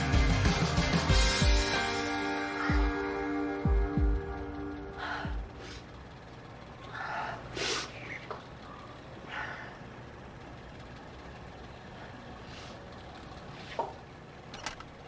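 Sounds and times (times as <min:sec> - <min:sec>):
low steady hum: 0:00.0 - 0:15.0
woman exhaling: 0:06.9 - 0:08.2.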